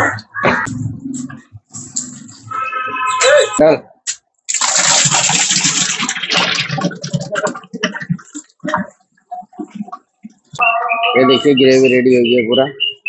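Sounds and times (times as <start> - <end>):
thick gravy bubbling and spluttering: 4.5 - 10.5.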